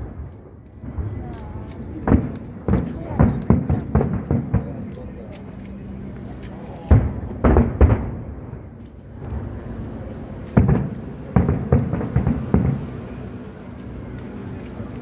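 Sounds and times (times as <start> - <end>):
firework shells bursting: 10.5 - 13.0.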